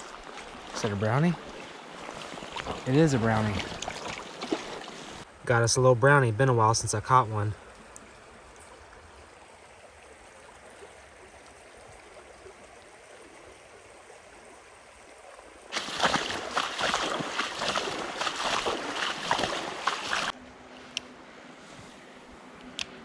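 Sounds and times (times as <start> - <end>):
boots splashing through water: 0.0 - 5.2, 15.7 - 20.4
shallow creek flowing: 0.0 - 23.0.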